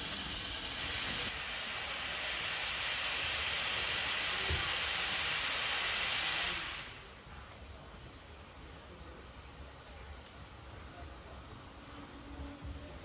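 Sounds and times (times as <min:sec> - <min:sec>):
steam hissing from train: 0:00.0 - 0:09.2.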